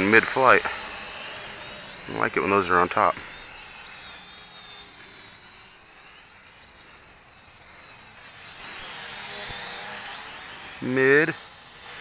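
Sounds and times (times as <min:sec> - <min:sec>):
quadcopter motors whining: 0:00.0 - 0:12.0.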